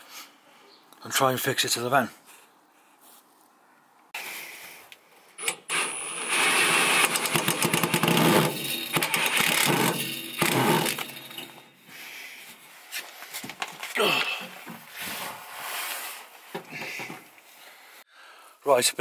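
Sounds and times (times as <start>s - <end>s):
metal clicking and rattling: 5.4s - 11.8s.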